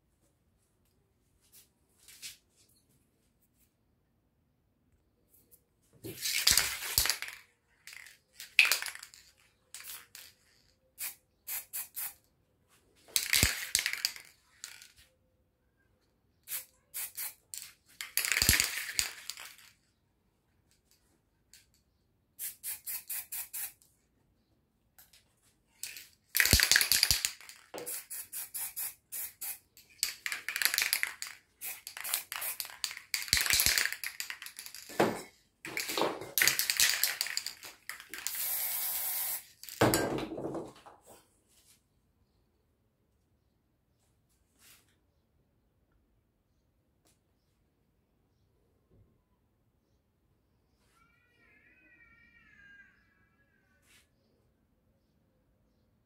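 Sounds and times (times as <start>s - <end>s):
spray can rattling: 6.1s - 12.2s, 13.1s - 15.0s, 16.5s - 19.8s, 22.4s - 23.8s, 25.8s - 40.1s
spray can hissing: 11.0s - 12.2s, 16.5s - 17.6s, 22.4s - 23.8s, 26.4s - 34.7s, 36.5s - 39.5s.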